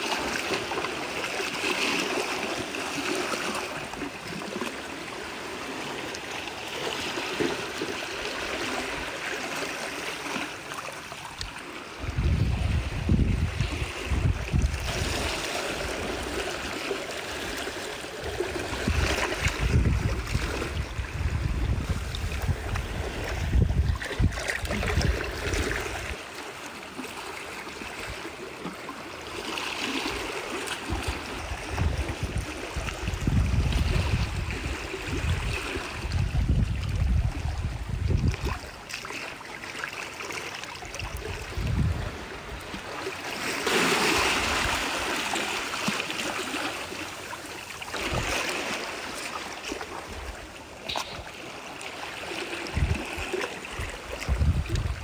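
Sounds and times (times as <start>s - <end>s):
seawater sloshing among rocks: 0.0s - 55.0s
wind rumbling on microphone: 11.9s - 16.4s, 18.2s - 26.2s, 30.9s - 38.8s, 41.0s - 42.9s, 48.0s - 48.5s, 52.5s - 55.0s.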